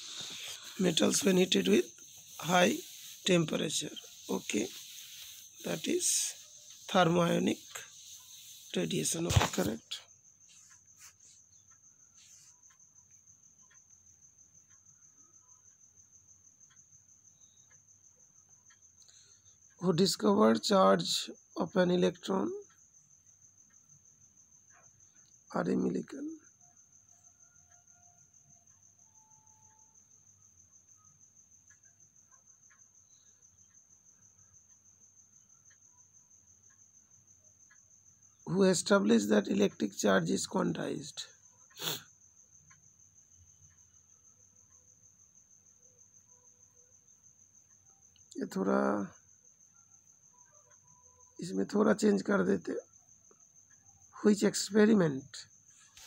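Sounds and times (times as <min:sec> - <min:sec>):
faint high-pitched pulsing trill: 0:00.0 - 0:10.0
high-pitched insect trill: 0:00.0 - 0:56.0
faint ticks: 0:00.2 - 0:56.0.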